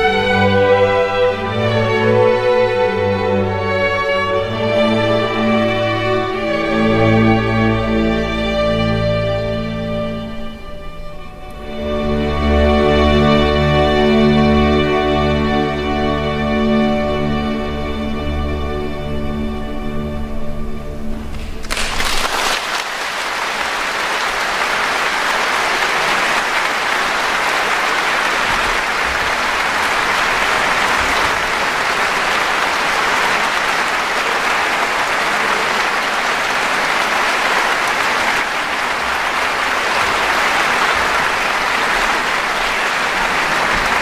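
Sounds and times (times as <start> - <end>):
audience applauding: 21.4 - 44.0.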